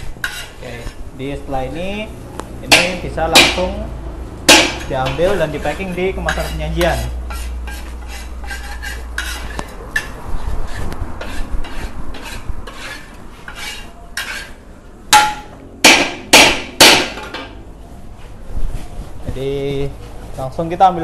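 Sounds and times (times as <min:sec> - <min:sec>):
spatula scraping in a wok: 0:00.0 - 0:02.1, 0:04.7 - 0:14.8
spatula clanging on wok: 0:02.6 - 0:03.8, 0:04.5 - 0:10.2, 0:11.2 - 0:17.6.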